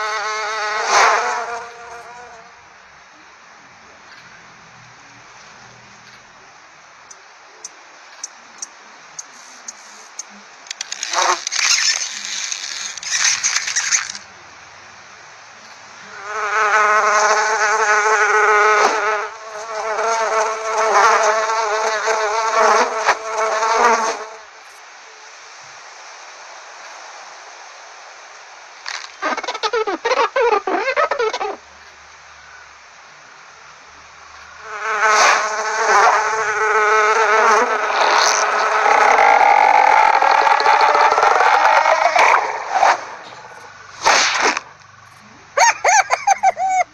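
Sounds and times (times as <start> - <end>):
fly buzzing: 0.0 - 2.5, 10.7 - 14.2, 16.1 - 24.4, 28.9 - 31.6, 34.6 - 44.9
sharp clicks: 10.2 - 14.2.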